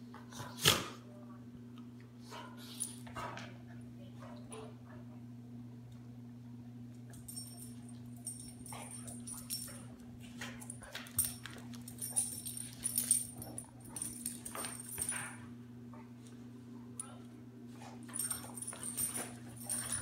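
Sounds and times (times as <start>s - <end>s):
steady low hum: 0.0s - 20.0s
dogs scuffling: 7.3s - 15.4s, 17.9s - 20.0s.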